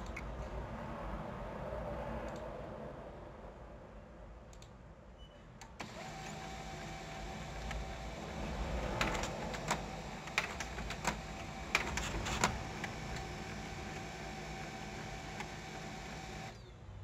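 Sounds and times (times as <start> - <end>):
sharp mechanical clicks: 5.6 - 16.7
printer motor hum: 5.8 - 16.7.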